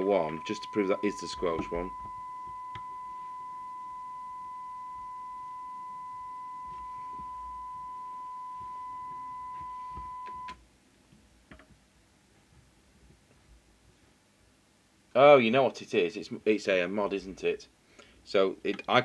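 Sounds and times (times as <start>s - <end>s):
steady test tone from radio: 0.0s - 10.6s.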